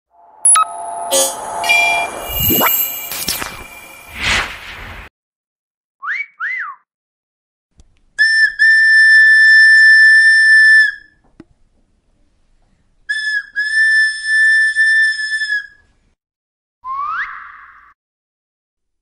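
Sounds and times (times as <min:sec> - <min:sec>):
clay bird whistle chirps: 0:00.4 - 0:04.2.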